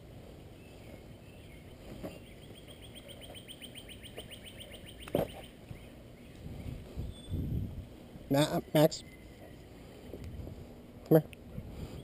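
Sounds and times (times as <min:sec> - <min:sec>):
bird trilling: 0:01.3 - 0:06.4.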